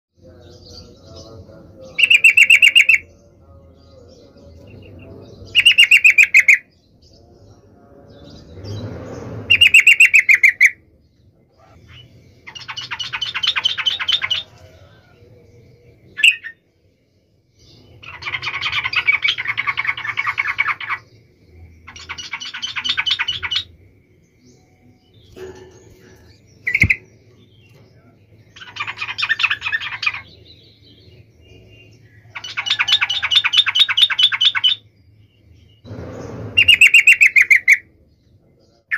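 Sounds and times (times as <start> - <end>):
bird singing rapid notes: 0.2 - 14.6, 15.9 - 16.7, 17.6 - 38.9
bird single calls: 26.6 - 27.1.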